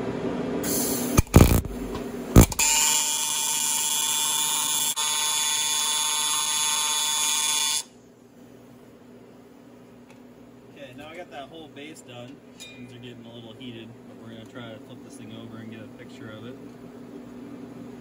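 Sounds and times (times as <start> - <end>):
welding arc buzzing: 0.6 - 7.9
welding arc striking crackles: 1.1 - 5.0.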